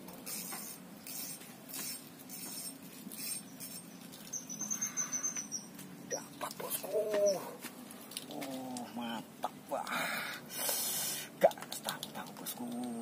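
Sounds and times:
fishing reel scratchy cranking: 0.3s - 5.2s.

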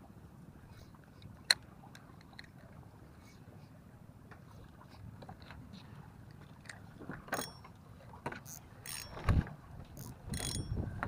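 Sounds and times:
fishing reel clicks and rattles: 7.3s - 7.7s, 8.4s - 10.8s
low wind rumble: 9.1s - 11.0s.

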